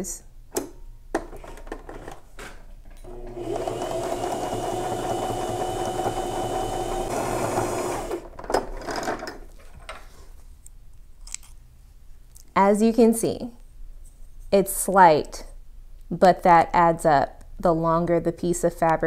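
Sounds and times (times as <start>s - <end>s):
sewing machine stitching: 3.0s - 9.1s.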